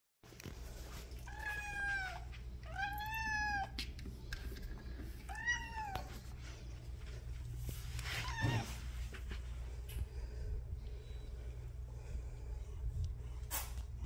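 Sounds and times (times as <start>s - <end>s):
cat meowing: 1.3s - 3.8s, 5.3s - 6.1s.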